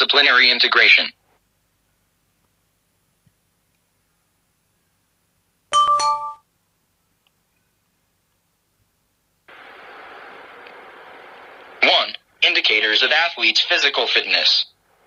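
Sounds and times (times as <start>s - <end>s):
steady hiss: 8.8s - 15.0s.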